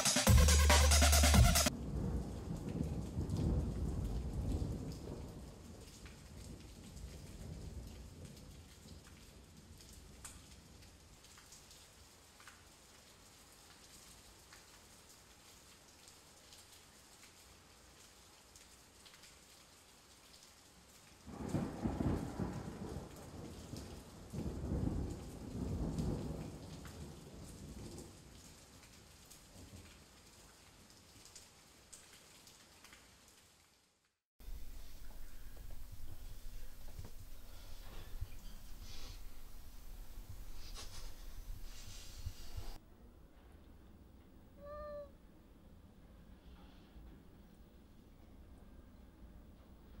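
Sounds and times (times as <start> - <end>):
rain patter: 0.0 - 42.8, 43.4 - 50.0
low roll of thunder: 1.7 - 9.0, 21.3 - 28.2, 34.4 - 42.8
water drips: 9.9 - 14.9, 34.4 - 42.8.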